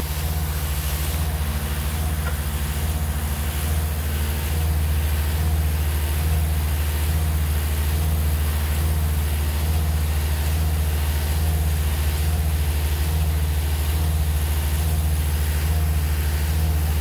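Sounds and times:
heavy engine idling: 0.0 - 17.0.

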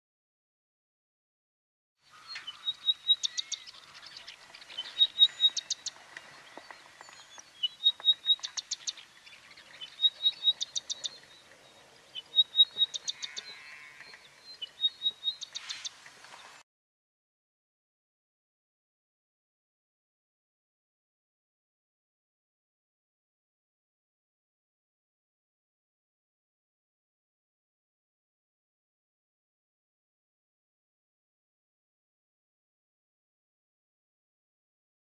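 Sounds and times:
songbird piping and clicking: 2.1 - 16.5.

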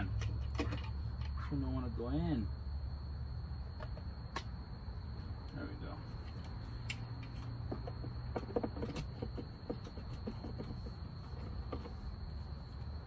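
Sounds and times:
car parts clicking and knocking: 0.0 - 1.4, 6.2 - 12.3
steady low hum: 0.0 - 13.0.

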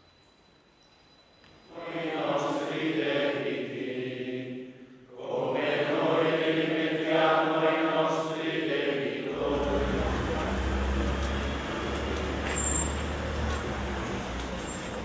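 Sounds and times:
men chanting in unison: 1.7 - 12.0.

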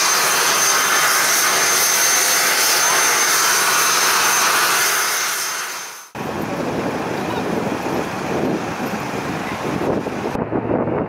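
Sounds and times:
turboprop engines whining: 0.0 - 11.0
wind noise: 6.1 - 11.0.

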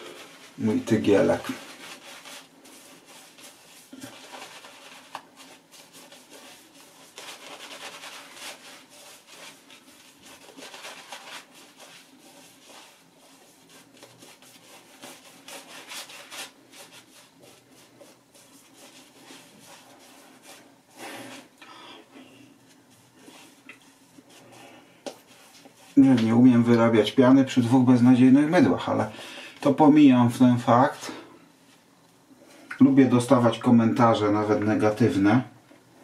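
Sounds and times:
shaving brush scrubbing lather: 0.0 - 21.5.

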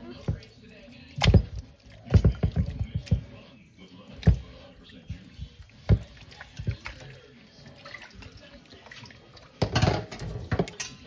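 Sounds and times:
hands squelching raw chicken: 4.1 - 9.6.

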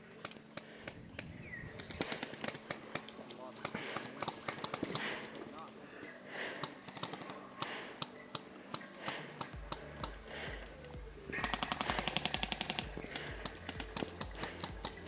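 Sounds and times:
airsoft gun firing: 6.6 - 15.0
pulsing bass beat music: 9.6 - 15.0.

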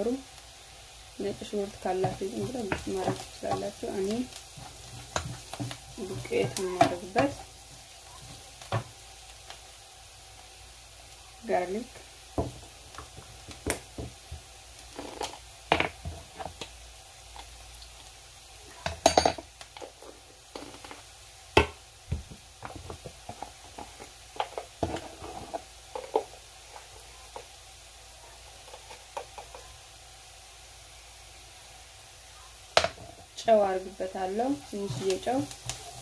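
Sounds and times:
onions sizzling: 0.0 - 36.0
utensils clinking on frying pan: 18.8 - 20.0.

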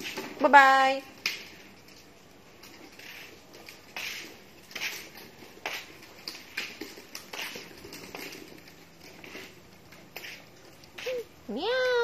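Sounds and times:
feet scuffing on concrete: 2.6 - 8.4, 9.0 - 11.4.

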